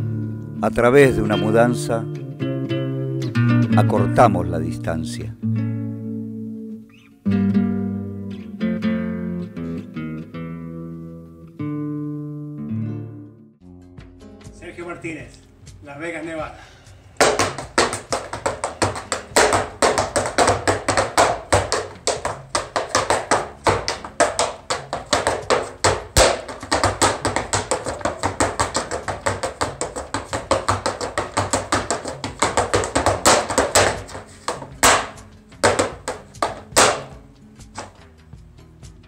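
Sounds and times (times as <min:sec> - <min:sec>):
shoes striking dance mat: 0:17.2 - 0:38.0.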